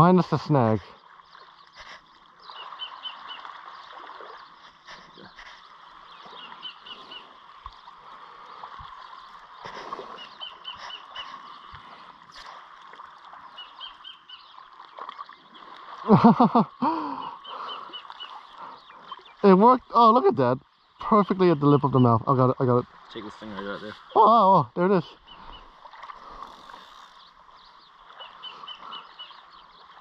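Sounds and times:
bird high pip calls: 1.4s - 7.4s, 9.1s - 11.7s, 13.5s - 14.7s, 17.1s - 19.5s, 26.8s - 30.0s
man exclaiming: 24.2s - 24.8s.

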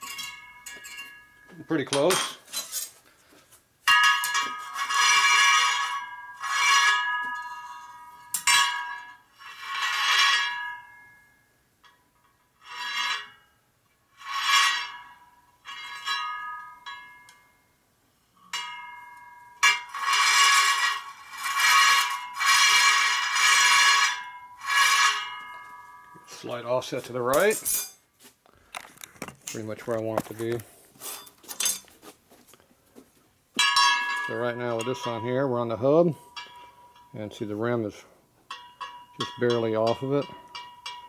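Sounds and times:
metal rim scraping rings: 0.0s - 3.0s, 3.9s - 11.1s, 11.8s - 17.4s, 18.3s - 28.0s, 33.6s - 41.0s.

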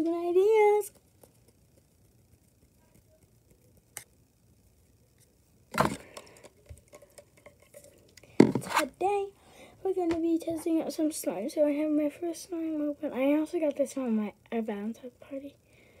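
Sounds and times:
crackling and clicking: 0.8s - 4.2s
handling noise on phone microphone: 6.7s - 9.0s
plastic container knocking: 8.4s - 8.7s.

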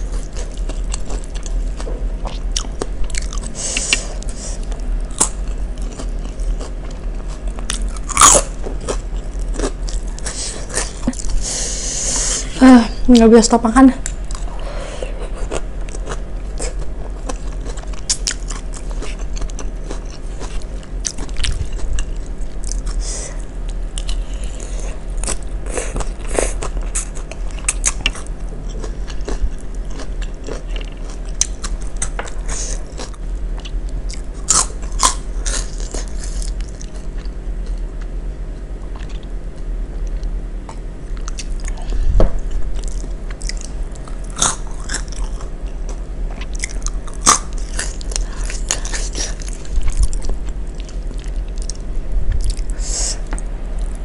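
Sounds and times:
chewing crunchy vegetables: 0.0s - 12.5s, 14.0s - 54.0s.

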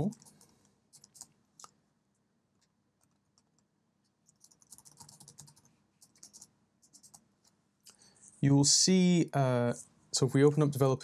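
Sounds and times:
typing on computer keyboard: 0.0s - 1.3s, 4.2s - 7.2s.

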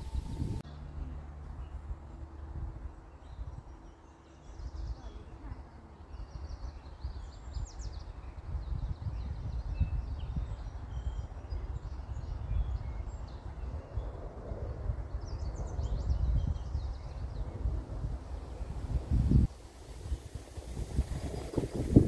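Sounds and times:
wind buffeting microphone: 0.0s - 22.0s
small birds chirping: 2.8s - 14.2s.

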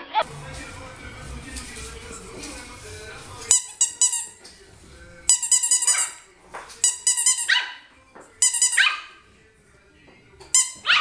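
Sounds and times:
squeaky toy squeaks: 3.5s - 4.4s, 5.3s - 6.2s, 6.8s - 7.8s, 8.4s - 9.1s, 10.5s - 11.0s
puppy yipping: 6.8s - 9.2s, 10.6s - 11.0s.

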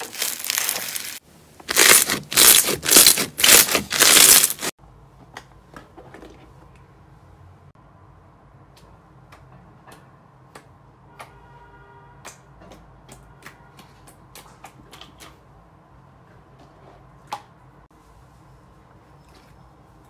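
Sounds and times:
slime squeezed by hand: 0.0s - 4.7s.

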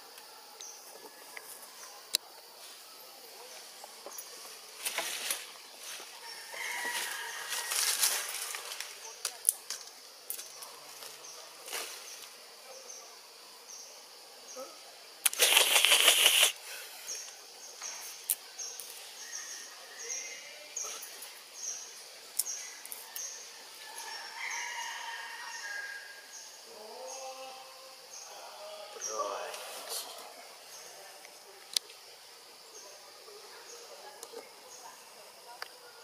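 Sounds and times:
loud fluttering rustle: 4.4s - 6.2s, 7.0s - 9.1s, 15.3s - 16.6s.

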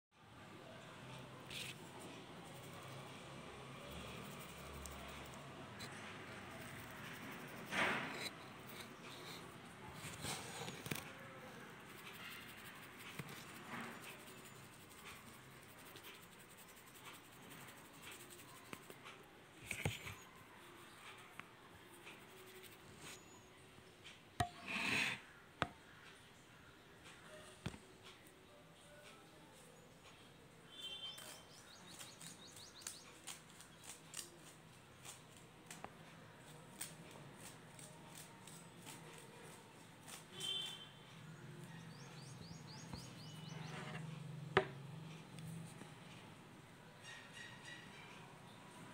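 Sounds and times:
powder scraping and crackling: 10.0s - 18.9s.

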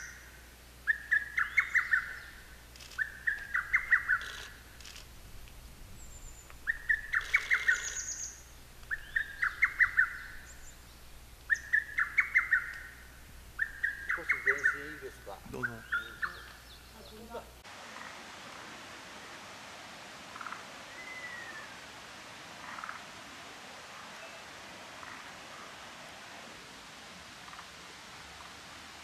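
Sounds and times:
thin high bird call: 6.0s - 10.8s, 20.4s - 21.8s
cuckoo singing: 6.4s - 10.7s, 11.5s - 13.0s, 13.6s - 17.4s.

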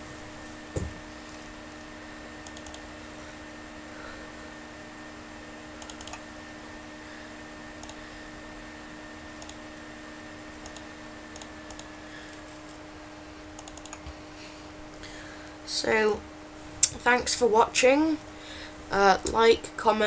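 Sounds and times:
steady low hum: 0.0s - 20.0s
mouse and keyboard clicks: 13.6s - 14.0s.

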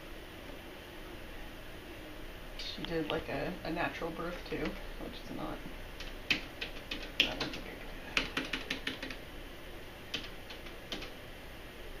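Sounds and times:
keyboard keys clicking: 6.0s - 9.2s, 10.1s - 11.1s.

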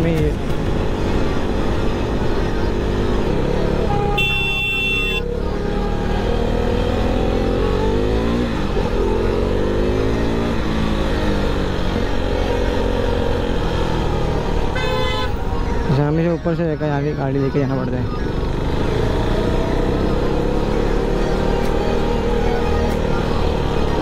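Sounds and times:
vehicle horn: 3.9s - 5.3s, 14.7s - 15.4s.

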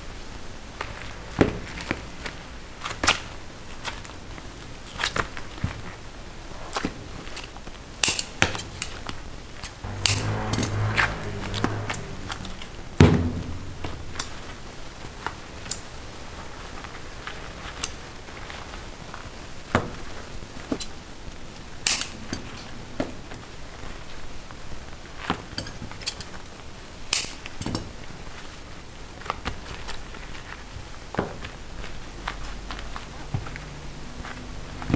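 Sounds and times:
metal tools and candy clinking: 21.9s - 22.5s.

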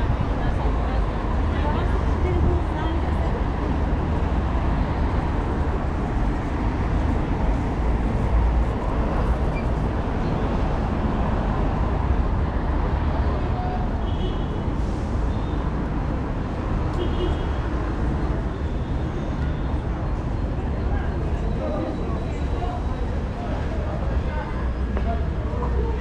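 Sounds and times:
city traffic rumble: 0.0s - 26.0s.

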